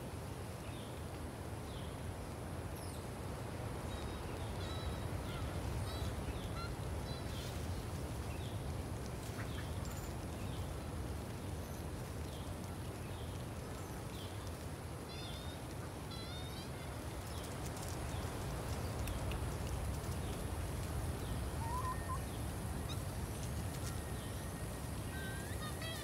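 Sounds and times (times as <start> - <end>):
steady outdoor hiss: 0.0 - 26.0
birds chirping: 21.2 - 26.0
bird warbling call: 21.6 - 23.0.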